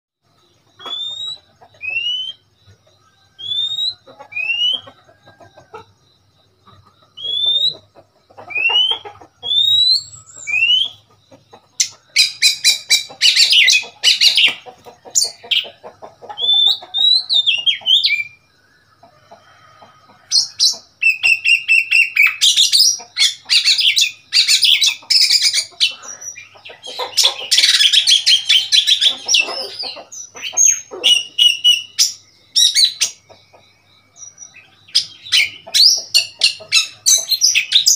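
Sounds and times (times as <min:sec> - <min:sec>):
bird singing whistled notes: 0:00.4 - 0:05.0, 0:07.2 - 0:07.9, 0:08.5 - 0:11.0, 0:16.4 - 0:18.5, 0:20.3 - 0:33.3.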